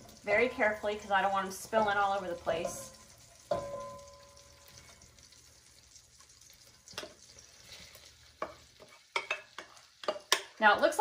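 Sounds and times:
leeks sizzling in butter: 0:00.0 - 0:11.0
glass bowl ringing: 0:02.6 - 0:04.6.

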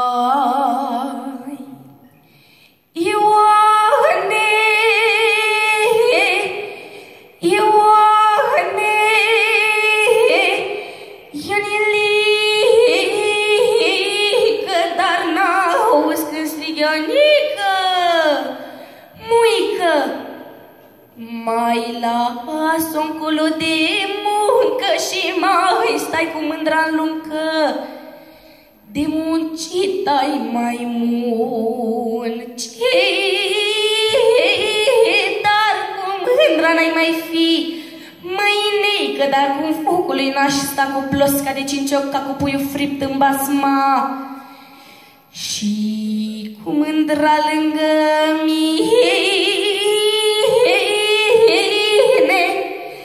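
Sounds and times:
boy singing into a microphone: 0:07.4 - 0:18.5, 0:21.2 - 0:28.0, 0:28.9 - 0:44.2
boy singing into microphone: 0:28.9 - 0:44.2.

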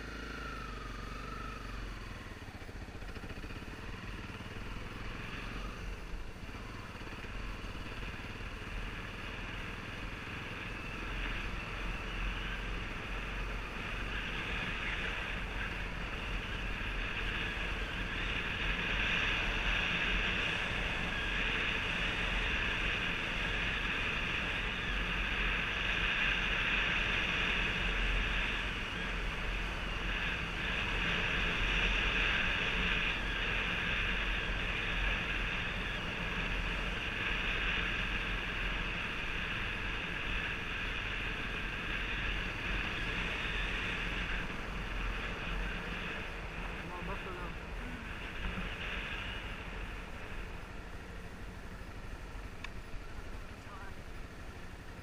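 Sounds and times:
wind rushing over microphone: 0:12.2 - 0:53.4.

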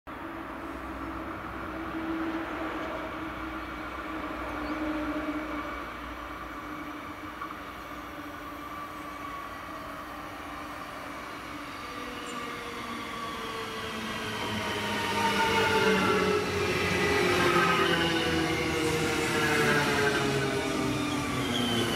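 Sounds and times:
train rolling noise: 0:00.1 - 0:21.9
electric train drive whining: 0:07.2 - 0:21.9.

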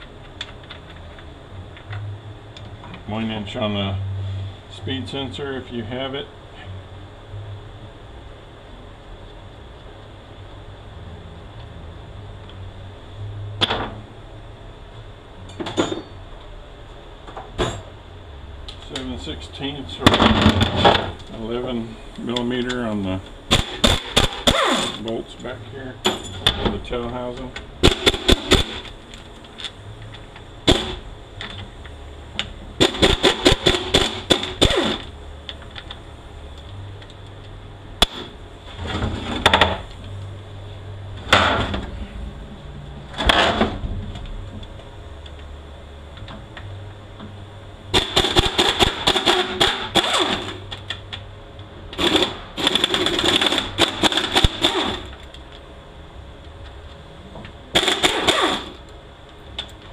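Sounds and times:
pneumatic air ratchet rattling: 0:23.5 - 0:25.0, 0:27.8 - 0:28.9, 0:32.8 - 0:35.1, 0:47.9 - 0:50.6, 0:52.0 - 0:55.2, 0:57.7 - 0:58.8.

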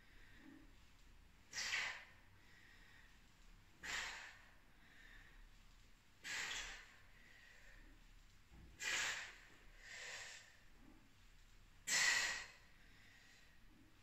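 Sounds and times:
woman breathing hard: 0:01.5 - 0:05.5, 0:11.8 - 0:13.6.

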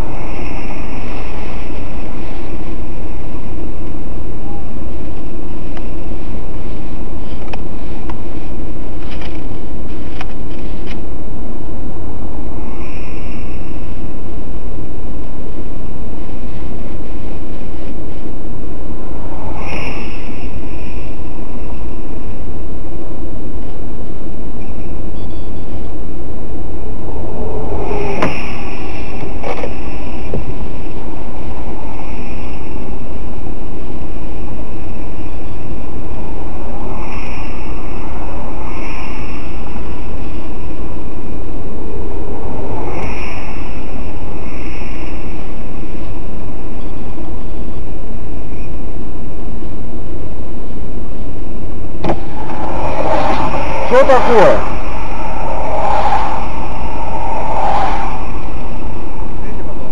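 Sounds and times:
loud rumbling inside car: 0:26.6 - 0:32.6, 0:51.9 - 0:59.9.

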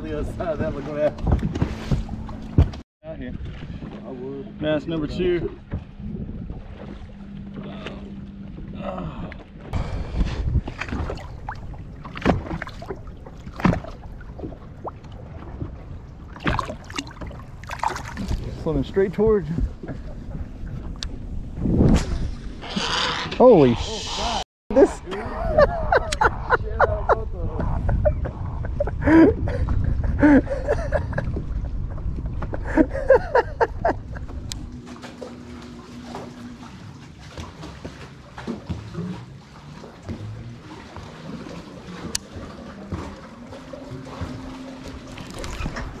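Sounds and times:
low rumble: 0:00.0 - 0:23.4, 0:25.0 - 0:37.1.

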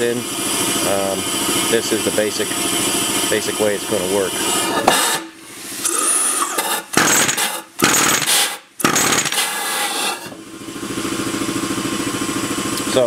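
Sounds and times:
pneumatic machine air rushes: 0:04.4 - 0:10.4.

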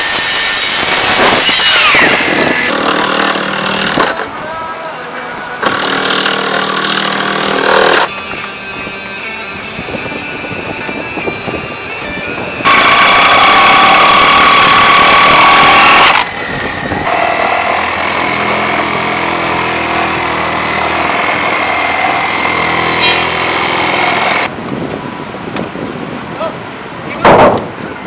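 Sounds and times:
cordless drill whirring: 0:00.0 - 0:04.0, 0:12.7 - 0:19.6.

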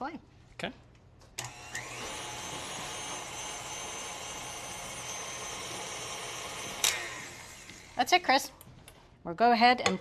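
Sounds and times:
stand mixer running: 0:01.8 - 0:08.0.

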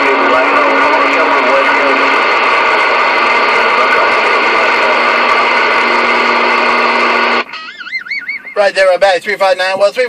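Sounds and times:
radio static hissing: 0:00.0 - 0:07.5.

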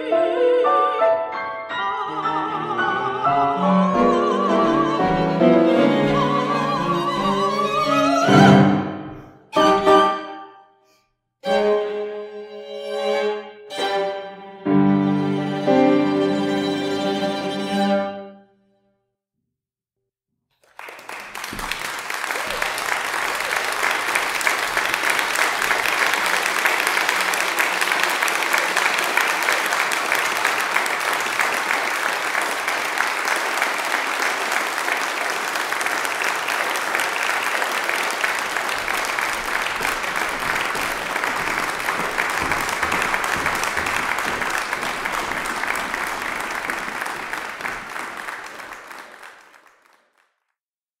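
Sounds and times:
audience applauding: 0:03.9 - 0:08.6, 0:20.6 - 0:50.5.

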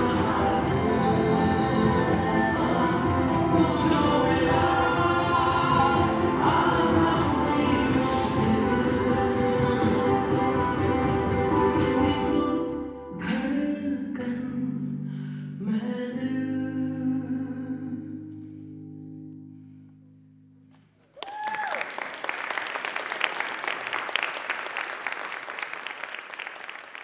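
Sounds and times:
person whooping: 0:21.2 - 0:22.0
audience applause: 0:21.2 - 0:27.0.

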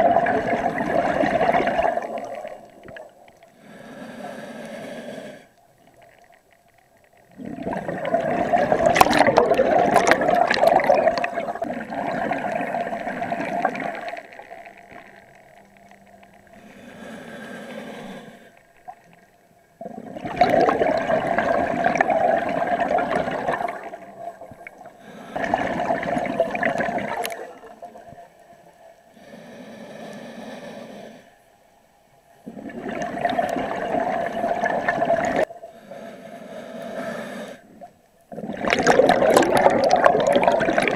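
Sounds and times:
gurgling exhaled bubbles: 0:00.0 - 0:03.4, 0:07.2 - 0:16.6, 0:19.8 - 0:28.3, 0:32.4 - 0:35.5, 0:37.7 - 0:40.9
regulator inhalation hiss: 0:03.5 - 0:05.6, 0:16.5 - 0:18.7, 0:29.0 - 0:31.5, 0:35.6 - 0:37.8.

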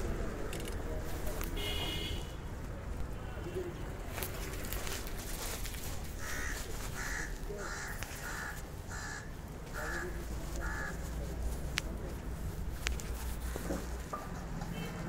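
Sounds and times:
crow cawing: 0:06.2 - 0:11.2.

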